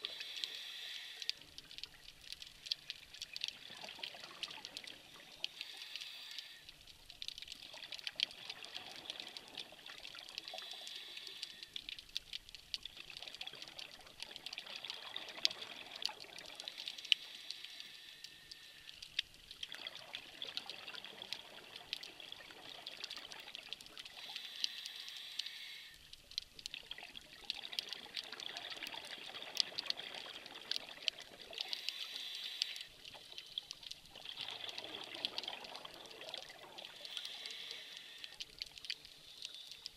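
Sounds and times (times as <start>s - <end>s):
regulator hiss on inhale: 0.0s - 1.8s, 4.8s - 7.0s, 10.4s - 12.0s, 16.7s - 19.2s, 24.0s - 26.2s, 31.6s - 33.3s, 36.9s - 39.9s.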